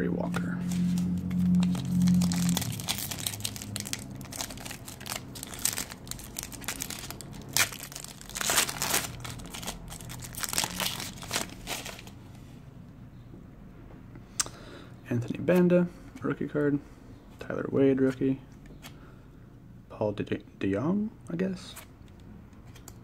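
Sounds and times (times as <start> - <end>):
foil wrapper tearing and crinkling: 1.2 - 12.1.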